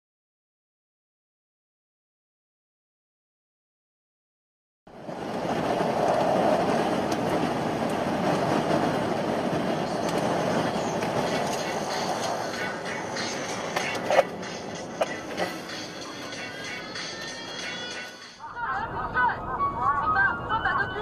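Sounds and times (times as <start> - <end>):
tyres rumbling on road: 4.9 - 16.9.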